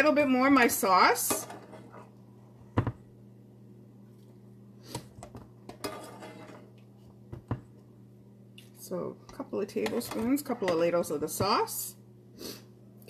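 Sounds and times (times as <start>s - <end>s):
steady low hum: 0.0s - 13.0s
spoon scraping: 5.7s - 6.6s.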